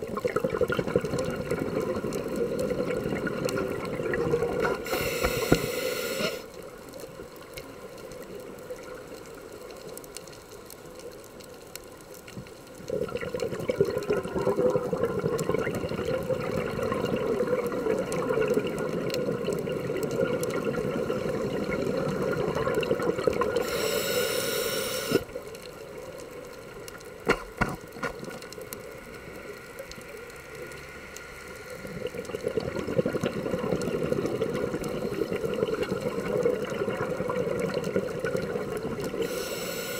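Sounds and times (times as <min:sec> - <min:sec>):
regulator breath hiss: 0:04.8 - 0:06.5, 0:23.6 - 0:25.3, 0:39.2 - 0:39.9.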